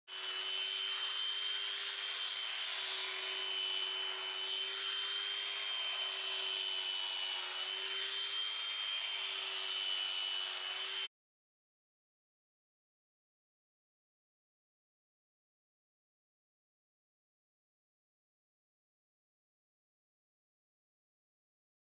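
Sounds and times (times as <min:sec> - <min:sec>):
electric sheep shears clipping: 0:00.1 - 0:11.1.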